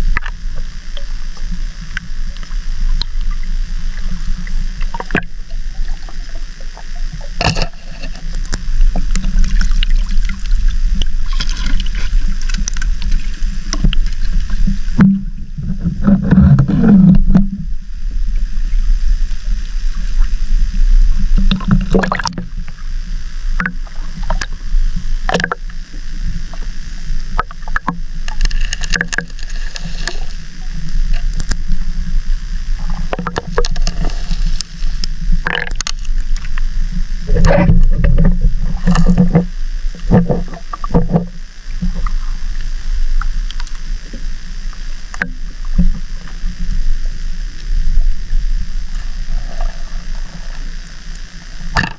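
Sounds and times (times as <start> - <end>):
muffled underwater water rumble: 0.0 - 51.9.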